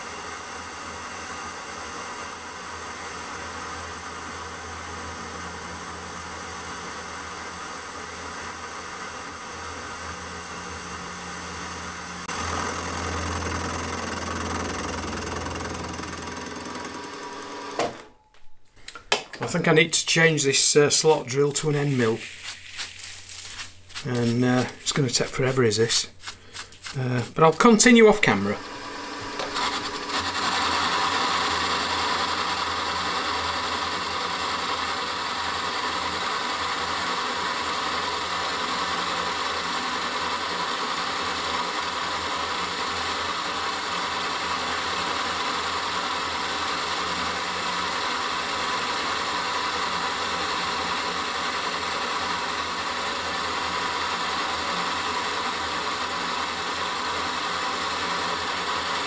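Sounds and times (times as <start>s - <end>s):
milling machine whir: 0.2s - 18.1s, 26.5s - 59.0s.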